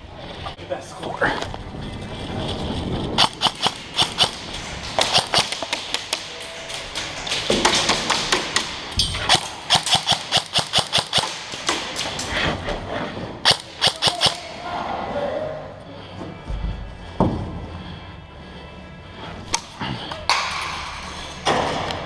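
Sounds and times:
airsoft guns firing: 3.2s - 12.2s, 13.4s - 14.5s.

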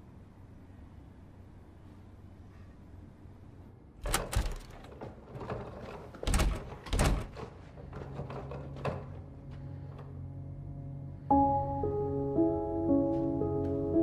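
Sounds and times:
door latch clicks and knocks: 4.0s - 5.1s, 6.2s - 7.4s.

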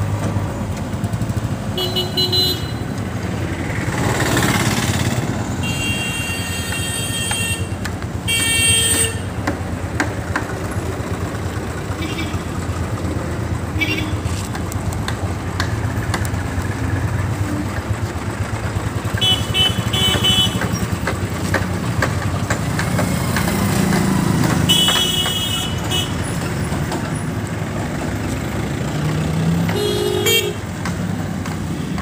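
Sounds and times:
diesel engine running: 0.0s - 32.0s
street traffic: 0.0s - 32.0s
vehicle horn toots: 1.8s - 2.8s, 5.6s - 9.4s, 12.0s - 12.5s, 13.8s - 14.3s, 19.1s - 20.8s, 24.6s - 26.2s, 29.7s - 30.7s.

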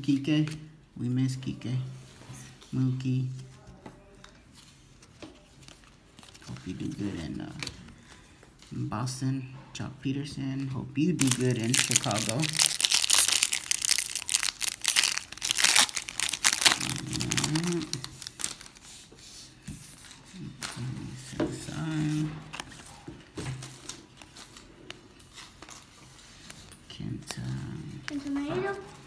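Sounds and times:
foil wrapper crinkling and tearing: 11.2s - 18.8s.

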